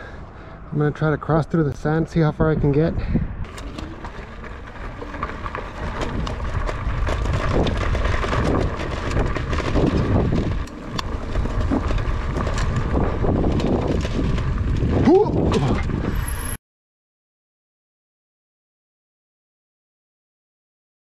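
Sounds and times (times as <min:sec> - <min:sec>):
wind buffeting microphone: 0:01.9 - 0:16.4
bike tyres crunching on gravel: 0:03.4 - 0:16.5.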